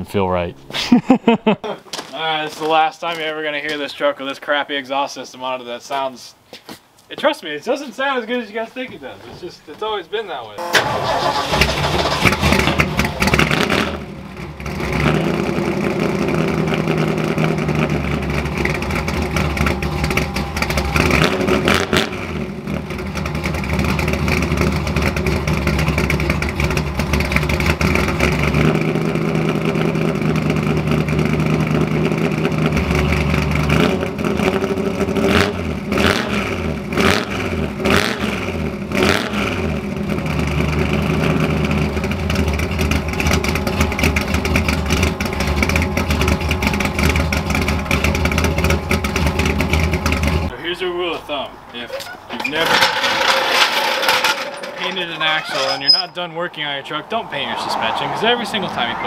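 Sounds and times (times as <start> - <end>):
pickup engine idling and revving: 10.6 - 50.5.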